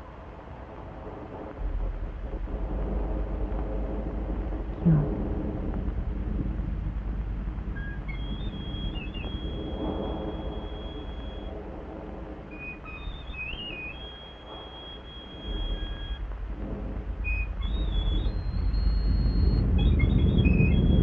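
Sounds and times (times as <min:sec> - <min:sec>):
low rumble: 0:00.0 - 0:21.0
high thin whistling tones: 0:07.7 - 0:11.6, 0:12.3 - 0:16.2, 0:17.2 - 0:21.0.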